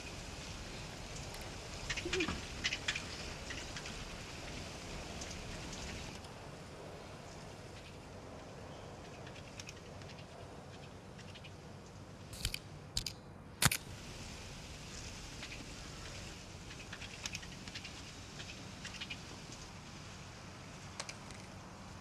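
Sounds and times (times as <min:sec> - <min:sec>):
faint film hiss with ticks: 0:00.0 - 0:06.5, 0:13.8 - 0:22.0
sharp clicks: 0:12.4 - 0:13.9.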